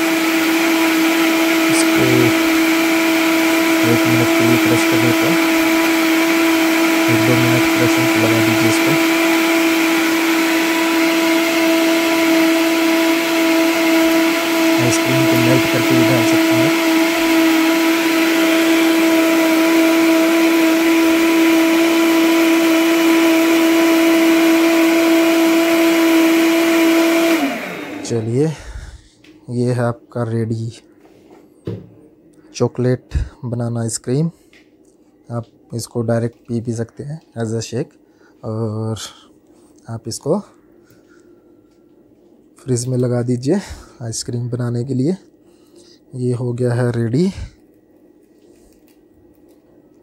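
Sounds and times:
uneven churning: 0.0s - 28.2s
blender running with steady whine: 0.0s - 28.6s.

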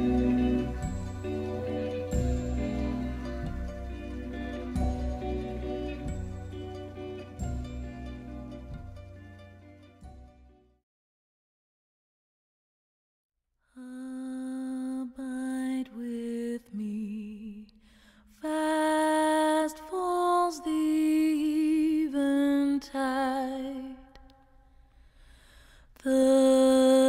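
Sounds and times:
person singing with vibrato: 0.0s - 6.0s, 26.0s - 27.0s.

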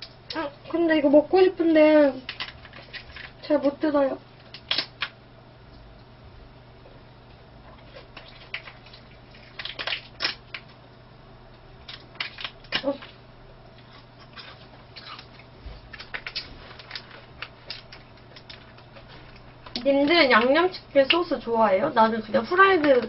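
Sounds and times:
plastic packet crinkling: 14.2s - 20.5s.

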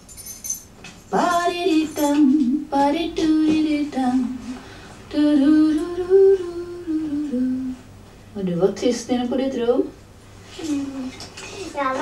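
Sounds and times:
woman singing: 1.1s - 7.8s.

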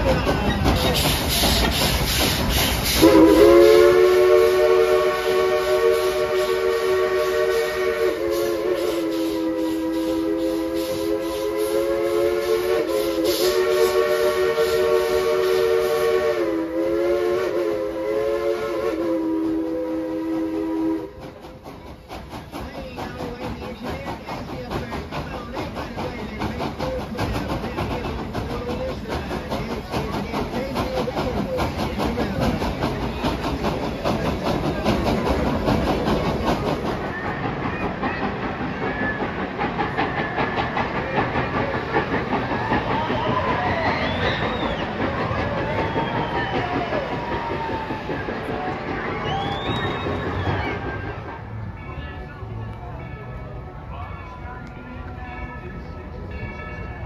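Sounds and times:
train running noise: 0.0s - 57.0s
steam locomotive whistle: 0.8s - 21.3s, 35.3s - 51.4s.

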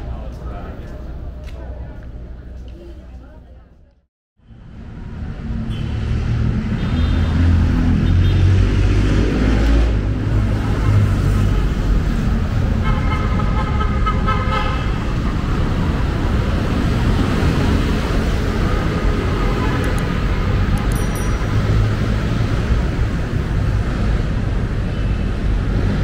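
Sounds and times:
traffic engine rumble: 0.0s - 26.0s
vehicle horn: 6.8s - 8.5s, 12.8s - 15.0s.

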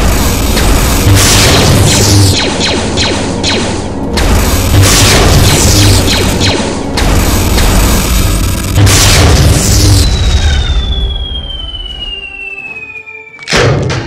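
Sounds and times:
laser blaster zaps: 0.0s - 10.7s.

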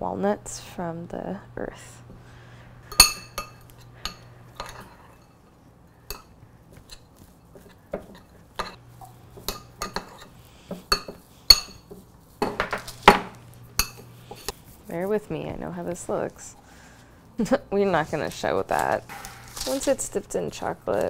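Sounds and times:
parchment paper rustling: 17.8s - 21.0s.

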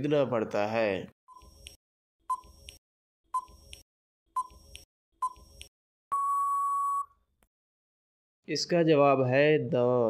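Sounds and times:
timer beeps: 2.3s - 2.6s, 3.4s - 3.8s, 4.4s - 7.1s
long steady beep: 6.1s - 7.2s.

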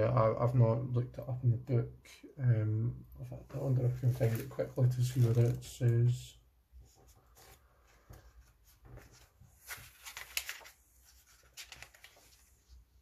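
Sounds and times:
paper pages rustling: 3.8s - 5.9s, 6.8s - 13.0s.

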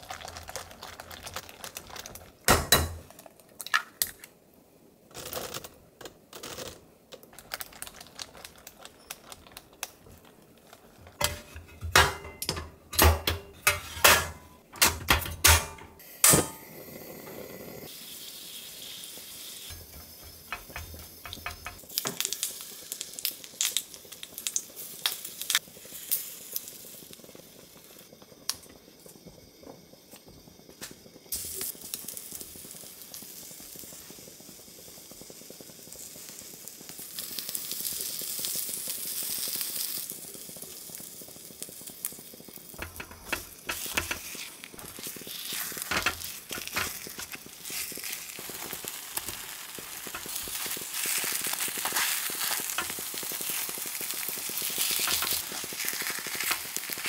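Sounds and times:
batter sizzling in pan: 0.0s - 57.0s
utensils scraping a pan: 13.6s - 14.5s, 42.8s - 47.4s.

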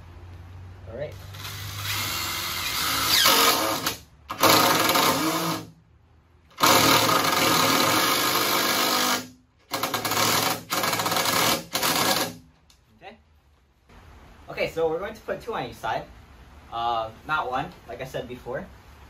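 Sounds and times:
cordless drill driving screws: 1.2s - 5.7s, 6.6s - 12.4s.

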